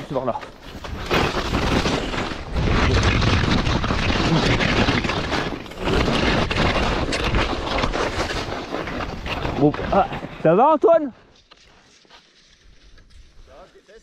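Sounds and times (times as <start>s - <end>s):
skis hissing through snow: 11.6s - 14.0s.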